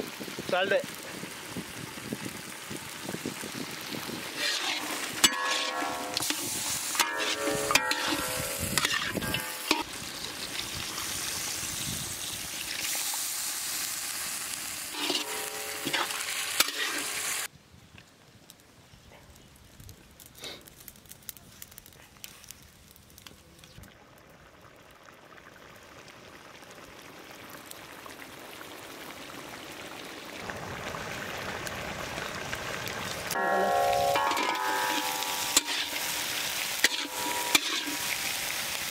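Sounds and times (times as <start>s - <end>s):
chicken sizzling in a pan: 0.0s - 17.5s, 23.4s - 38.9s
metal spatula scraping: 4.3s - 9.8s, 14.9s - 17.2s, 33.5s - 38.3s.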